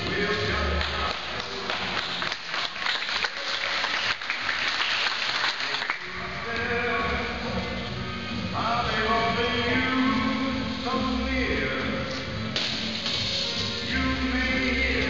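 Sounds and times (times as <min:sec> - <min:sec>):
music: 0:00.0 - 0:15.0
audience applauding: 0:00.8 - 0:06.2.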